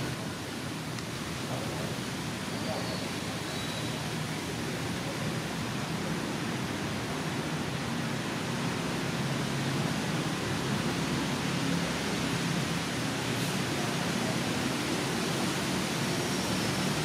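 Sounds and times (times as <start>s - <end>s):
steady rushing noise: 4.0s - 17.0s.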